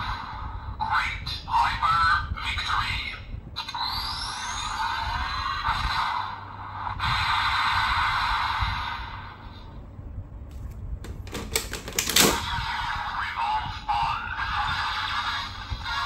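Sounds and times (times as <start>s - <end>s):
toy electronic voice: 0.8s - 6.3s, 12.5s - 16.0s
toy electronic sound effects: 3.6s - 6.2s.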